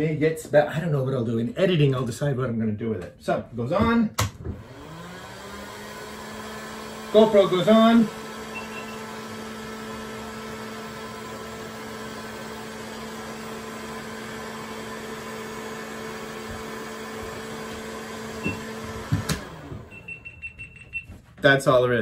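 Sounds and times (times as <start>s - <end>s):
heat gun whirring: 4.2s - 20.4s.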